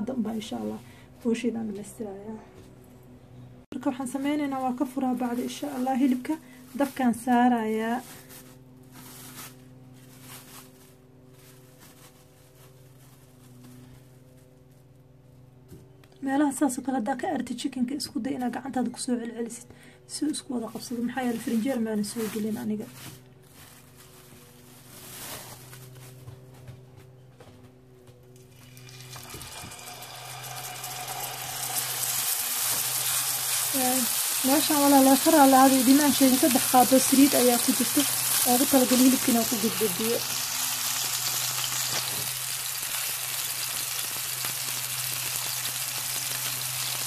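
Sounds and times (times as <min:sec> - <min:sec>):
plastic wrap crinkling: 0:04.6 - 0:14.8, 0:21.1 - 0:26.2, 0:28.6 - 0:47.0
hot oil sizzling in a frying pan: 0:28.6 - 0:47.0.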